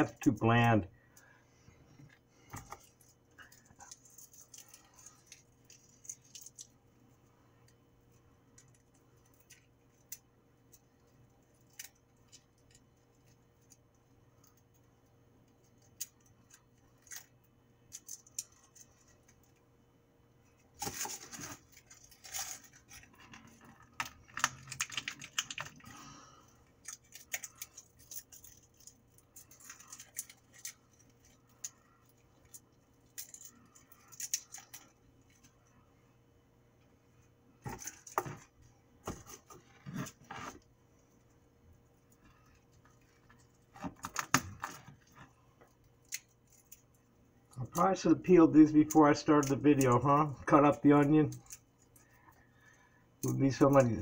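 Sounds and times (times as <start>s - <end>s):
faint steady hum: 0.0s - 54.0s
garlic skin crackling: 20.8s - 35.5s.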